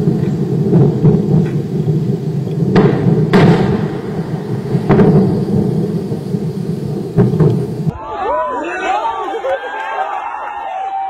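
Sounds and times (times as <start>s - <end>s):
deep rumble of burning rocket: 0.0s - 8.0s
sharp blast bangs: 0.0s - 8.0s.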